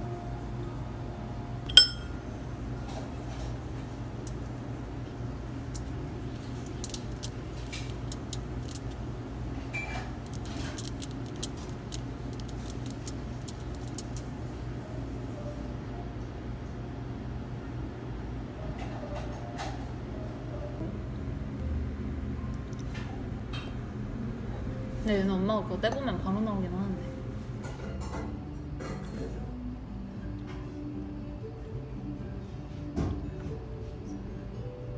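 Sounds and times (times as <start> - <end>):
low room hum: 0.0 - 34.9
fork clinking on ceramic plate: 1.7 - 2.1.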